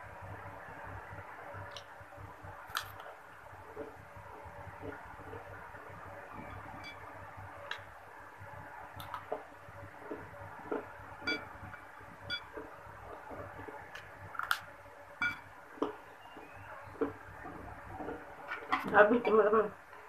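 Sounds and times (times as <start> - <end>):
crackers crunched in mouth: 2.7 - 3.2.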